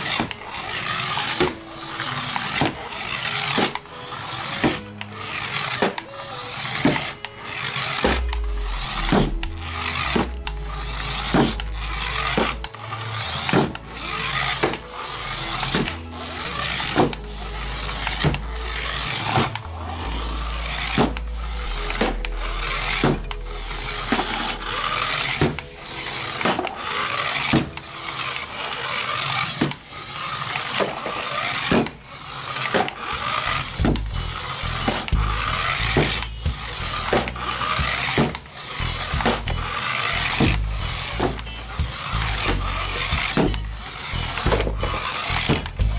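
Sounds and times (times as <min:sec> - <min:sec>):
toy car motor whirring: 0:00.0 - 0:45.9
music with steady beat and bass: 0:07.9 - 0:26.6, 0:33.4 - 0:45.9.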